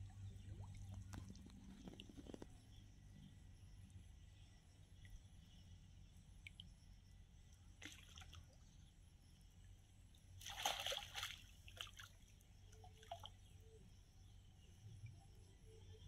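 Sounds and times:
fish splashing in water: 0:10.4 - 0:12.1.

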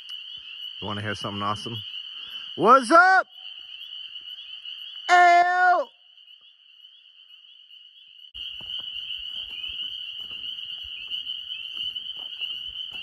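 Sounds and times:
frogs trilling: 0:00.0 - 0:13.0.

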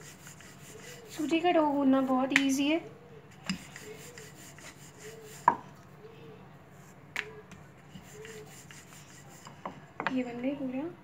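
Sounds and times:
rolling pin rolling dough: 0:00.0 - 0:02.2, 0:03.3 - 0:05.6, 0:07.8 - 0:09.9.

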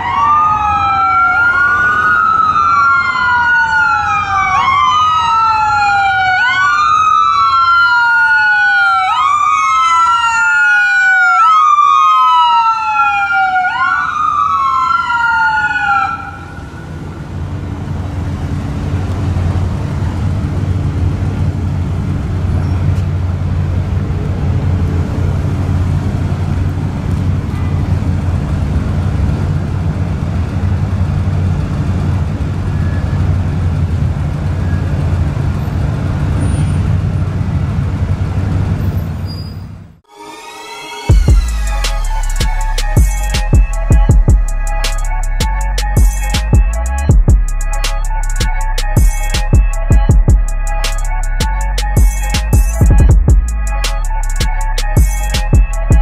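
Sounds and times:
ambulance siren wailing: 0:00.0 - 0:18.4, 0:40.0 - 0:56.0
traffic rumble: 0:00.0 - 0:40.0, 0:41.1 - 0:56.0.

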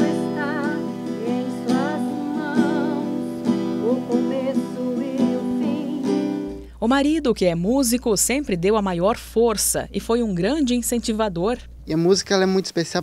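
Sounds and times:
strummed acoustic guitar: 0:00.0 - 0:07.3
woman singing gospel song: 0:00.0 - 0:08.8.

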